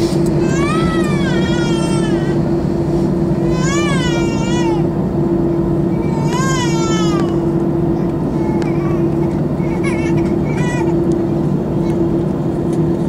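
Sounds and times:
aircraft engines droning: 0.0s - 13.0s
baby crying: 0.4s - 2.4s, 3.4s - 4.9s, 6.0s - 7.5s, 8.3s - 11.0s.

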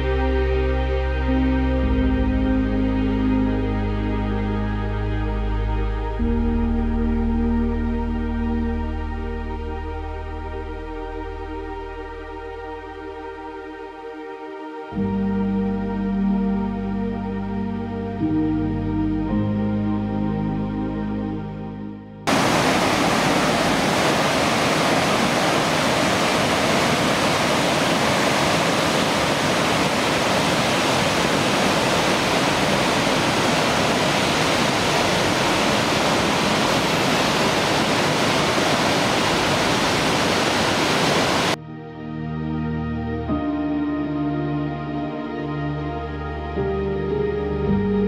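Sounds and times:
soft background music: 0.0s - 24.2s, 41.4s - 48.0s
white water rushing: 22.3s - 41.6s.

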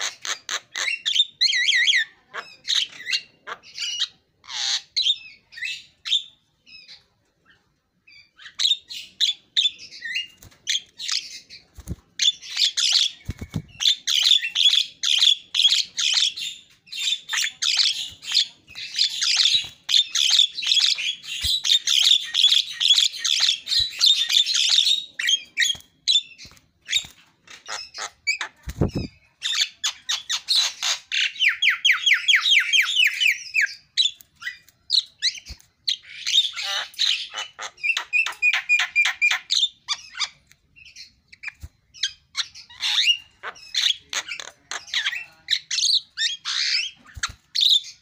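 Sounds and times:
bird singing chattering song: 0.0s - 48.0s.

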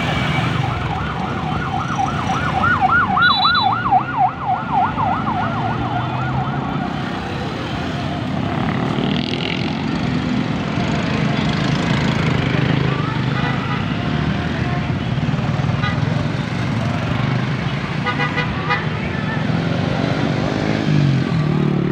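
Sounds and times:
siren yelping: 0.2s - 7.5s
motorcycle engines running: 0.6s - 21.9s.

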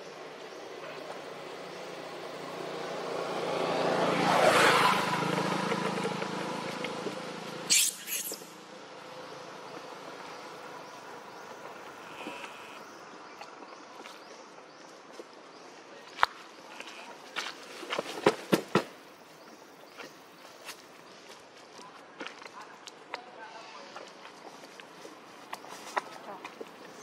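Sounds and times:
motor vehicle passing: 0.8s - 13.2s
short high hissy sounds: 7.7s - 8.5s.

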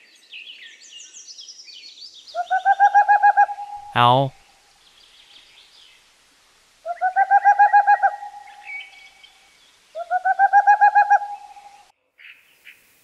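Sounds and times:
owl trilling call: 2.4s - 3.9s, 6.8s - 9.0s, 10.0s - 11.8s.

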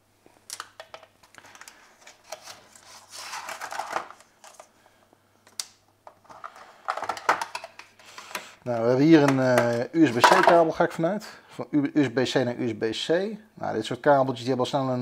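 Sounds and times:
plastic packaging crinkling: 0.4s - 4.8s.

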